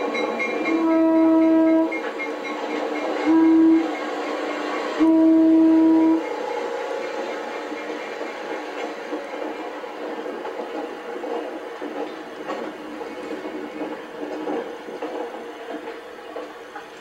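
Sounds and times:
passing train rumble: 0.0s - 17.0s
train air horn blasts: 0.7s - 2.0s, 3.1s - 7.3s.

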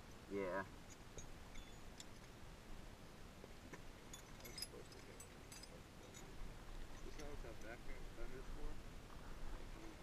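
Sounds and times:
small wrenches clinking: 0.9s - 2.3s, 4.1s - 6.3s, 6.9s - 7.7s.

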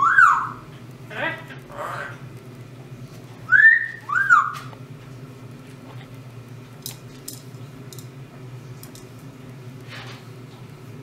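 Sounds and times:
parrot whistling: 0.0s - 0.6s, 3.5s - 4.7s.

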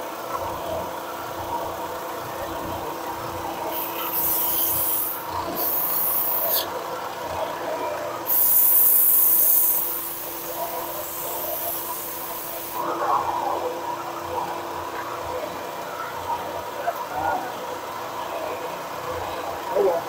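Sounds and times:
belt sander motor hum: 3.3s - 6.7s.

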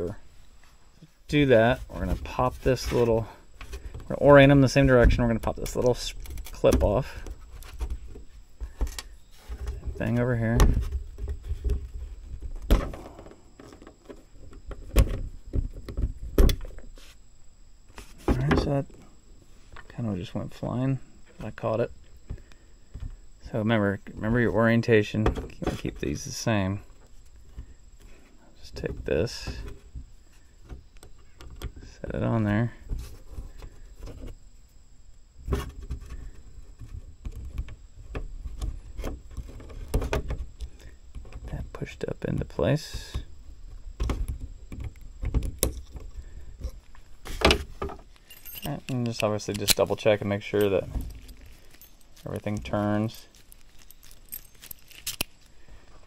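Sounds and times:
small metal parts clicking: 48.1s - 50.0s, 50.6s - 55.5s.

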